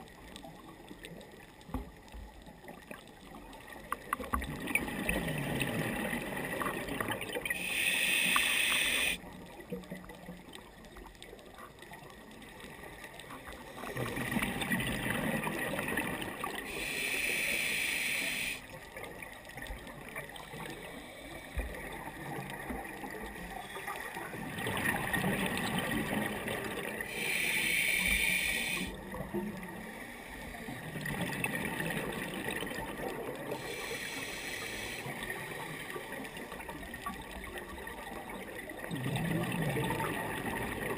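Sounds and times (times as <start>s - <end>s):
underwater bubbling: 0.0s - 40.9s
regulator inhalation hiss: 7.6s - 9.2s, 16.7s - 18.7s, 27.1s - 29.0s, 33.6s - 36.0s.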